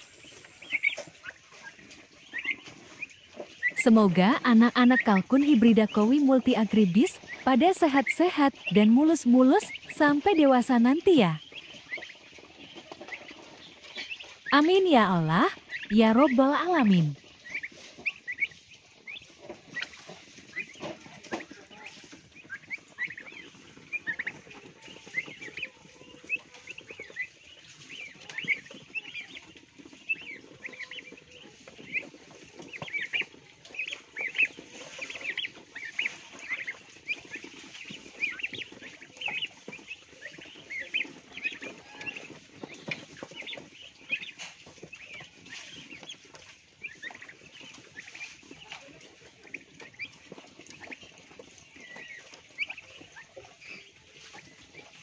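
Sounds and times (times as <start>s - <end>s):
turkey poults peeping: 0.0s - 55.0s
beaks pecking wooden trough: 0.1s - 55.0s.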